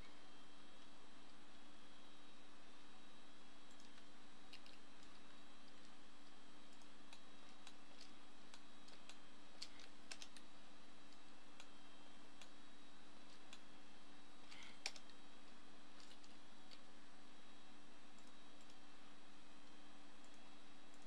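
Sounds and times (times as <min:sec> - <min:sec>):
mouse and keyboard clicks: 0:03.7 - 0:06.0, 0:06.7 - 0:10.5, 0:14.5 - 0:15.2.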